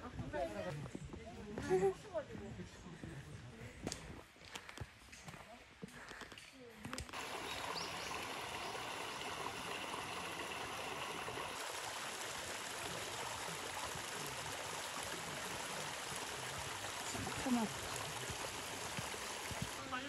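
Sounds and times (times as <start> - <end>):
stream water rushing: 7.1 - 20.0.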